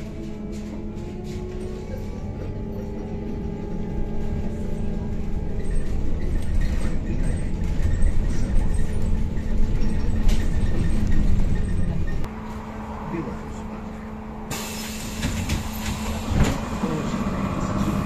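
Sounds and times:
road and body rumble: 0.0 - 18.0.

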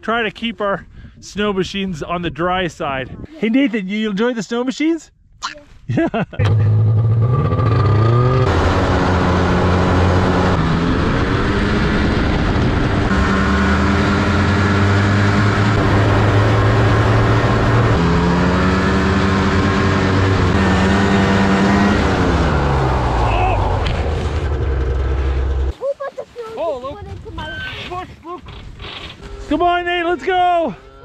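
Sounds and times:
snowmobile engine running: 6.4 - 25.7.

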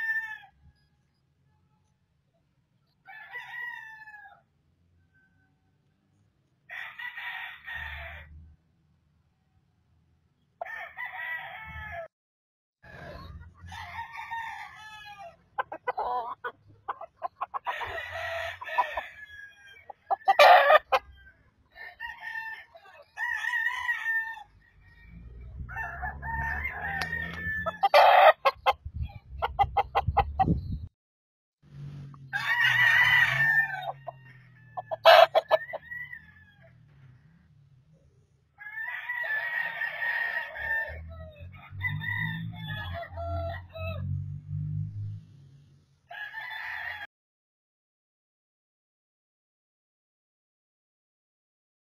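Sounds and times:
roosters crowing: 0.0 - 0.6, 3.0 - 4.4, 6.7 - 8.4, 10.6 - 12.1, 13.0 - 28.8, 32.0 - 37.4, 38.6 - 44.3, 46.1 - 47.1.

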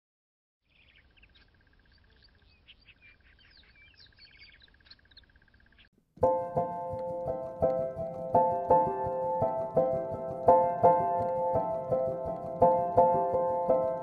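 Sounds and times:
bird trilling: 0.6 - 5.9
birds chirping and whistling: 0.7 - 5.9
piano music with chords: 6.2 - 14.0.

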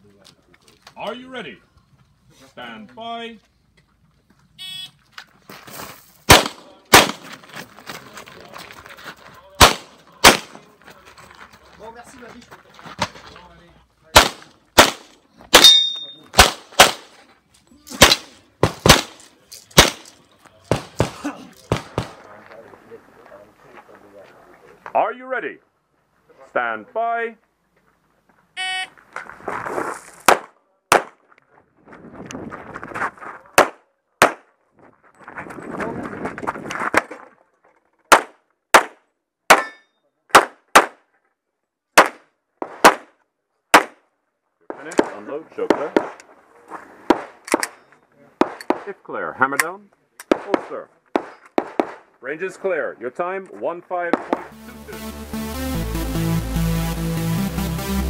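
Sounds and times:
footsteps and movement: 3.4 - 6.3, 7.1 - 13.8, 17.0 - 25.0, 27.4 - 30.3, 31.1 - 33.6, 34.5 - 38.1, 45.8 - 48.9
handgun shots: 6.3 - 7.3, 9.6 - 10.6, 14.2 - 17.1, 17.9 - 19.2, 19.8 - 20.1
pistol shots: 6.3 - 7.3, 9.6 - 10.6, 14.1 - 17.1, 17.9 - 19.2, 19.8 - 20.1, 20.7 - 22.2, 30.3 - 31.2, 33.6 - 34.5, 38.1 - 41.0, 42.0 - 43.1, 43.7 - 44.0, 50.2 - 52.0
shot timer beep: 28.6 - 28.9.

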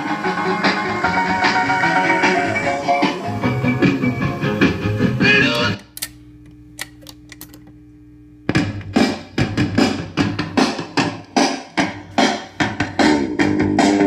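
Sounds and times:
record playing with drum beat: 0.0 - 5.9, 8.4 - 14.0
steady hum: 0.0 - 14.0
record changer clicks: 5.4 - 7.8.

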